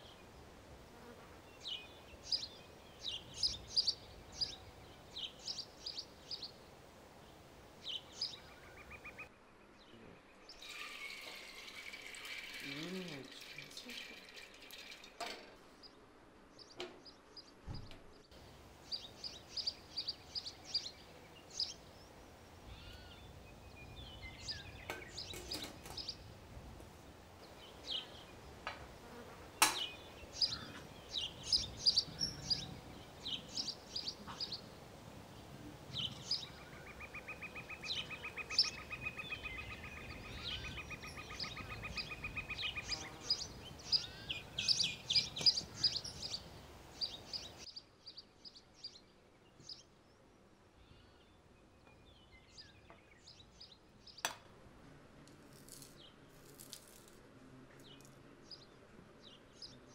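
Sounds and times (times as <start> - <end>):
birds chirping: 0.0 - 54.4
sharp click: 29.6 - 29.9.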